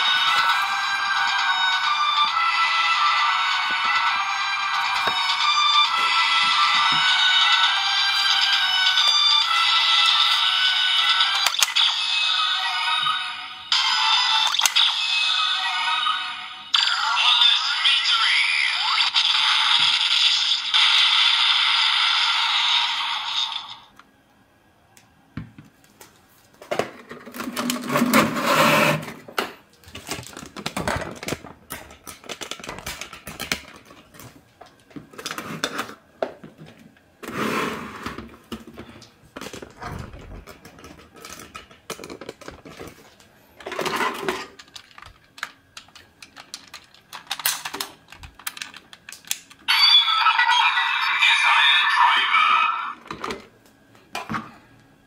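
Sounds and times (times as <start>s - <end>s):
toy speaker playing sound: 0.0s - 21.4s, 49.7s - 53.0s
hands handling plastic toy: 44.0s - 49.6s.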